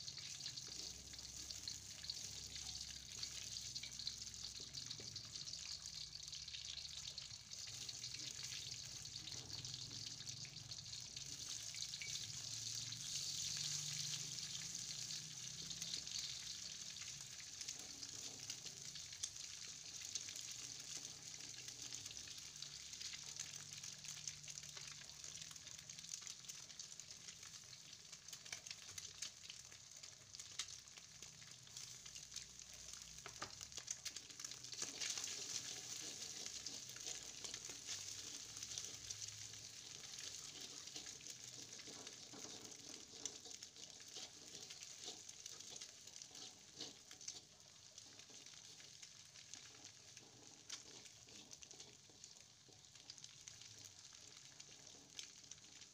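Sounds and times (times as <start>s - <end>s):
food frying in hot oil: 0.0s - 55.9s
wooden spatula scraping pan: 34.8s - 39.1s, 39.8s - 48.9s, 49.8s - 52.2s.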